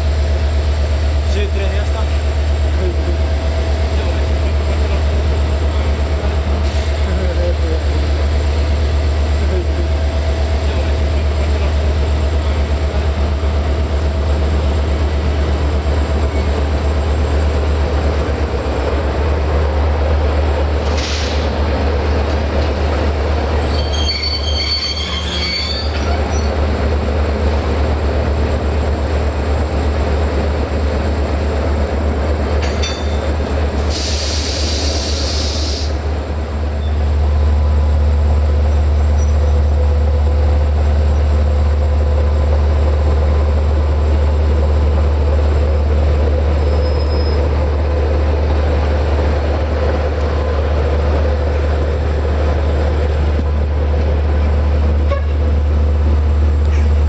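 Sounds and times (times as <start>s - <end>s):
locomotive engine rumbling: 0.0s - 57.0s
loud air hiss: 20.9s - 21.6s, 33.8s - 36.1s
train wheels squealing: 23.5s - 26.6s, 36.8s - 37.0s, 46.6s - 47.6s.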